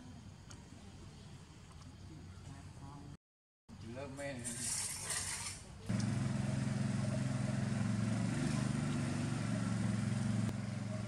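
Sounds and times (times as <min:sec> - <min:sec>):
engine idling: 0:05.9 - 0:11.0.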